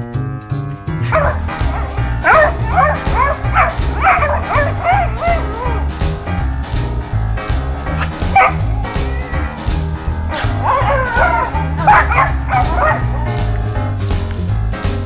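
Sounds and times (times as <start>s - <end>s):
background music with steady beat: 0.0s - 15.0s
dogs yipping and whining: 1.1s - 5.9s, 8.0s - 9.7s, 10.3s - 13.5s.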